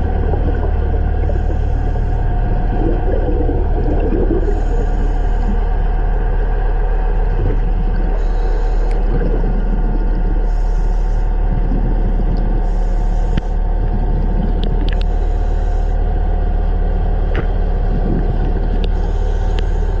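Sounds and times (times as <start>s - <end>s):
deep hum: 0.0s - 20.0s
low mechanical rumble: 0.0s - 20.0s
faint clicks: 14.6s - 15.2s, 18.8s - 19.7s.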